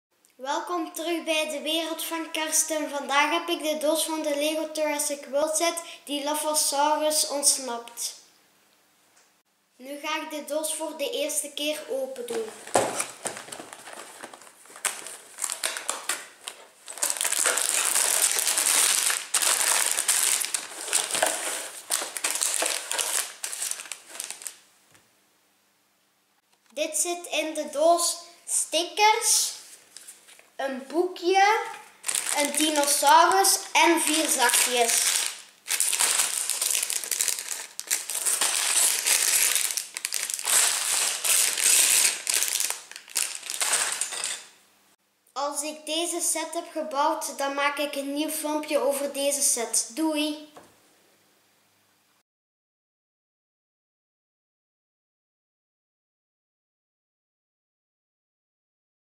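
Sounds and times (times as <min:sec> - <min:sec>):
plastic bags crinkling: 0:12.2 - 0:24.6, 0:31.6 - 0:44.6
cardboard box being opened: 0:12.5 - 0:15.7
plastic pieces clicking: 0:35.9 - 0:44.5.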